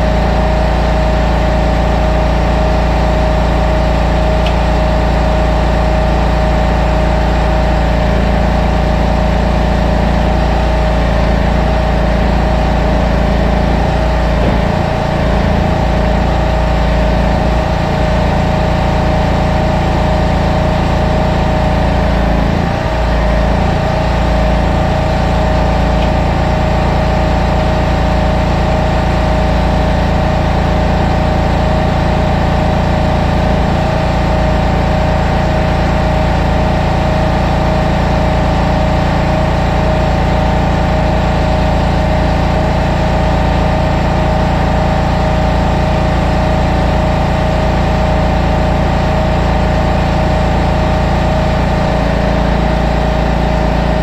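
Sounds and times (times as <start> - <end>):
engine running under load: 0.0 - 54.0.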